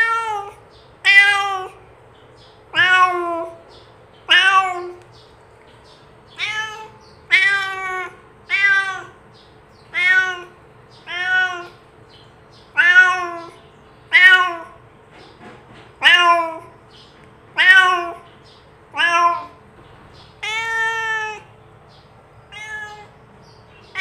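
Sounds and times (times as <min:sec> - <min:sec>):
cat meowing: 0:00.0 - 0:01.8, 0:02.7 - 0:03.6, 0:04.3 - 0:05.0, 0:06.3 - 0:09.2, 0:09.8 - 0:11.8, 0:12.6 - 0:14.8, 0:16.0 - 0:16.8, 0:17.6 - 0:18.3, 0:18.9 - 0:19.6, 0:20.3 - 0:21.5, 0:22.5 - 0:23.2.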